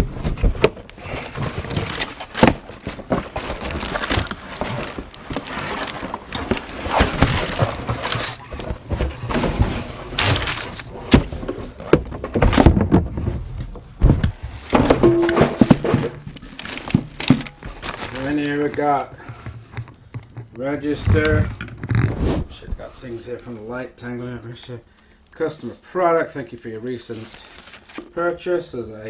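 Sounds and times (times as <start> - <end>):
packing paper rustling and crackling: 0.0 - 19.2, 27.0 - 28.2
cardboard scraping and knocking: 0.0 - 22.9.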